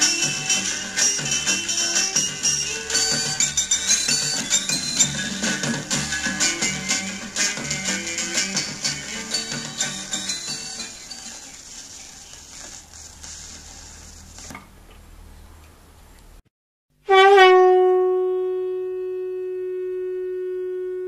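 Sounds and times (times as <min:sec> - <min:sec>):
record hiss and crackle: 0:00.0 - 0:16.4
sustained synthesized horn note: 0:17.0 - 0:21.0.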